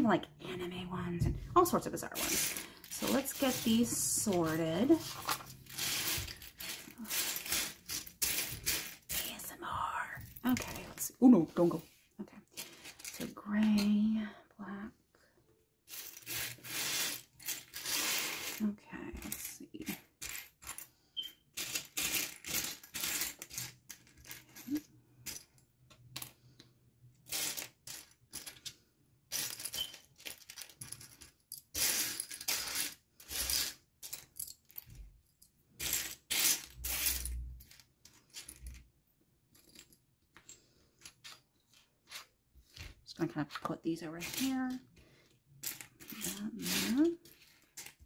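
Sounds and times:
plastic bricks clicking and clattering: 5.1 - 9.0, 27.2 - 35.0.

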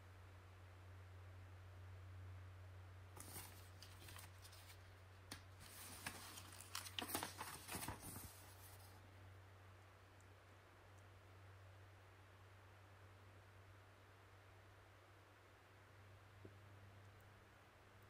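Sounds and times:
paper pages rustling: 3.2 - 9.0.

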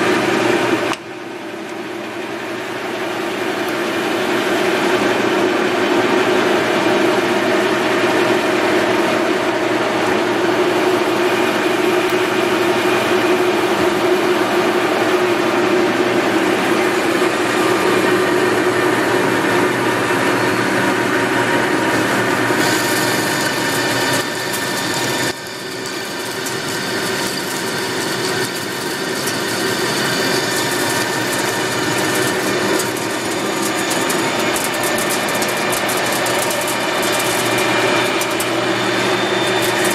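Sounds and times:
lathe running with mechanical hum: 0.0 - 39.9
held tones from lathe gearing: 10.6 - 39.9.

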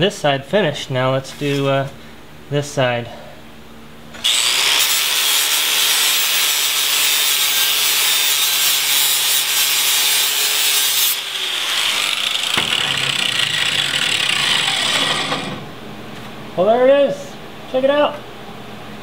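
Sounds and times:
angle grinder grinding metal: 4.2 - 15.6
grinder whining: 4.2 - 15.7.

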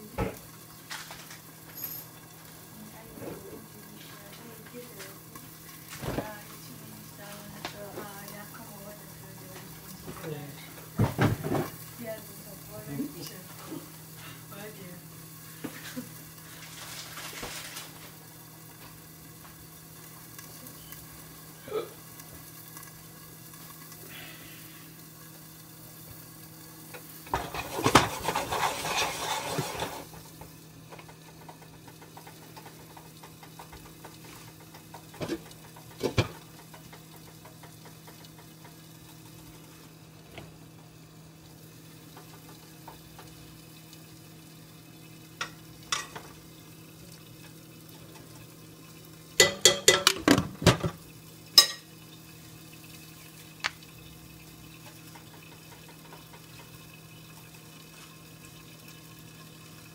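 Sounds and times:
faint sizzle: 0.0 - 59.9
utensil scraping against pan: 27.2 - 30.2.

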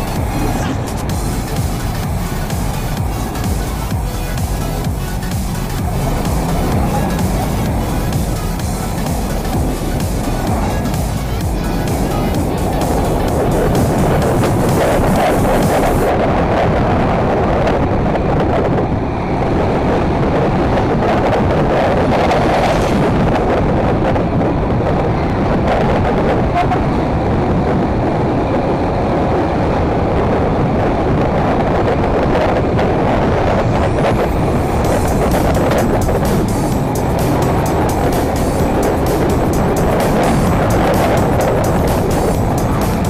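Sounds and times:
scooter engine running: 0.0 - 16.1, 34.2 - 43.0
rush of wind and road noise: 0.0 - 43.0.

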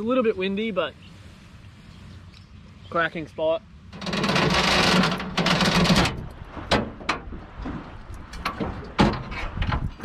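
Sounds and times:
wind rumble on microphone: 4.0 - 10.0.

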